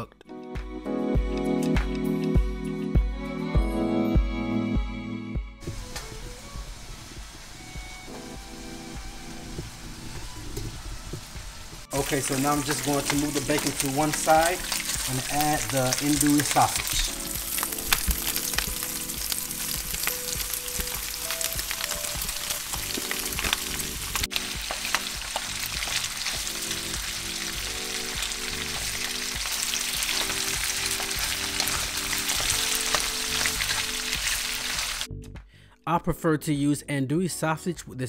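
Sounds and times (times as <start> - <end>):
bacon and sausage sizzling: 5.6 - 35.1.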